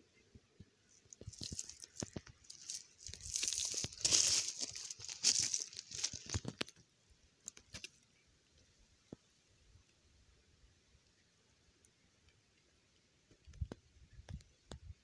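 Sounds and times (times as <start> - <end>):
dry rustling and crackling: 0.9 - 6.8.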